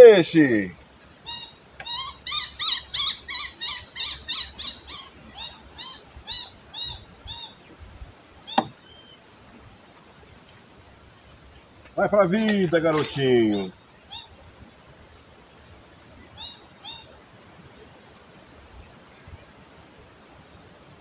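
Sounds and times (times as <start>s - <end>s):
bird calling: 0.0s - 9.3s, 11.5s - 14.4s, 16.2s - 17.2s.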